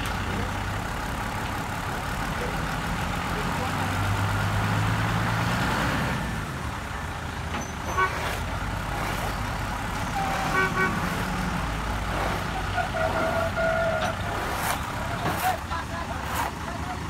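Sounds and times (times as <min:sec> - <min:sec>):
truck engine running: 0:00.0 - 0:17.0
horn toots: 0:07.8 - 0:09.4, 0:10.1 - 0:15.5.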